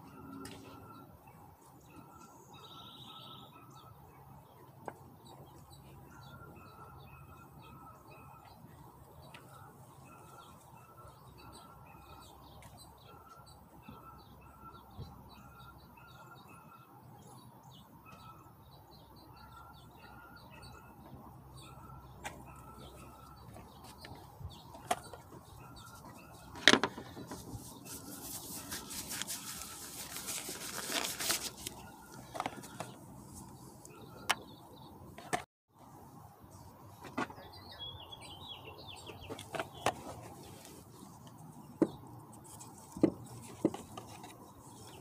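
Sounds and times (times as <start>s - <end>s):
small bird chirping: 0.6s - 26.6s
cardboard box rustling: 26.8s - 33.0s.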